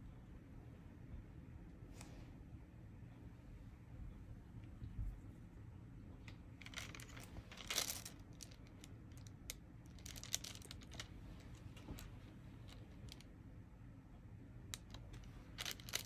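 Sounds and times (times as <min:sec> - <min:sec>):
plastic rustle: 0:06.6 - 0:09.3, 0:09.9 - 0:13.2, 0:14.8 - 0:16.0.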